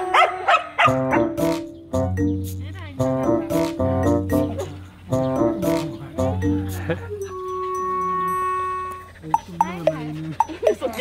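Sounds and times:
background music: 0:00.0 - 0:09.5
dog barking: 0:00.1 - 0:01.2.

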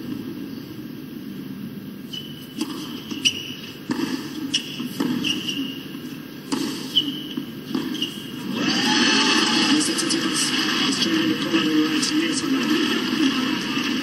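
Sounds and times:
sneakers squeaking on court: 0:02.0 - 0:08.5
racket hitting tennis ball: 0:02.4 - 0:08.6
crowd noise: 0:08.5 - 0:14.0.

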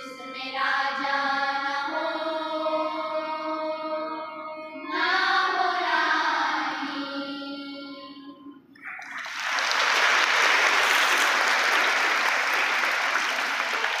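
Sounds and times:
choir singing: 0:00.0 - 0:09.0
audience clapping: 0:08.8 - 0:14.0.

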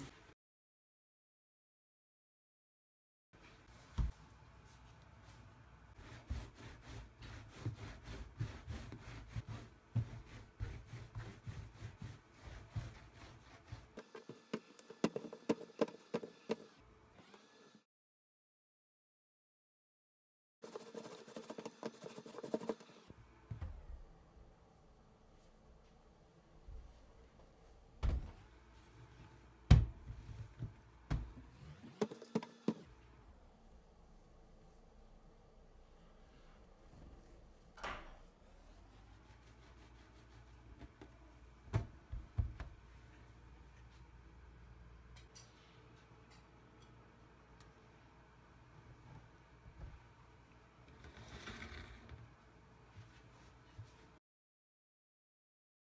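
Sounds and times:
dough rubbing on metal tray: 0:06.0 - 0:14.3, 0:20.6 - 0:23.0.

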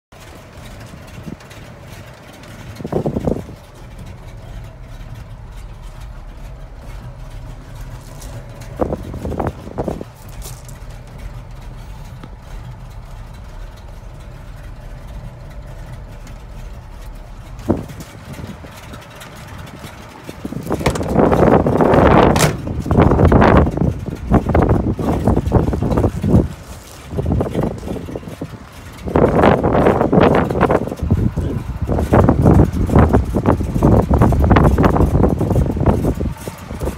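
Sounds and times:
truck engine idling: 0:00.1 - 0:36.9
handling knocks and bumps: 0:00.8 - 0:28.4
wind rush on microphone: 0:02.4 - 0:36.9.

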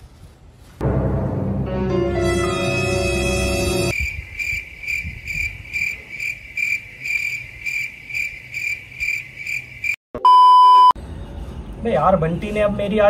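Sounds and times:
cricket chirping: 0:03.9 - 0:10.0.

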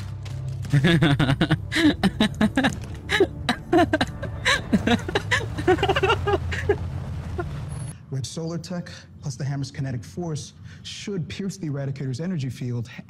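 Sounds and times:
man laughing: 0:00.7 - 0:06.8.

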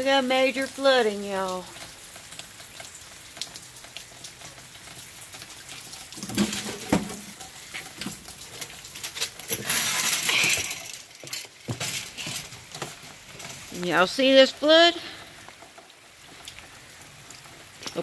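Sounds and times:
rainwater dripping: 0:00.0 - 0:18.0.

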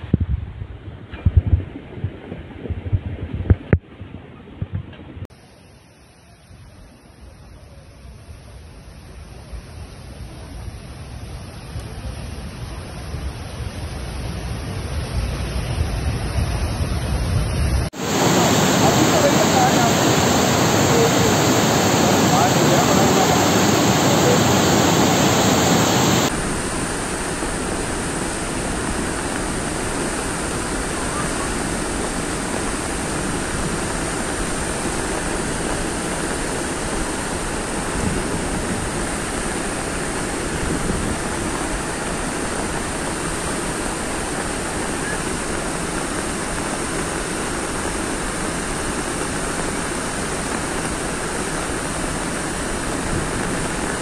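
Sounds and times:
torrent of water rushing: 0:00.0 - 0:54.0.

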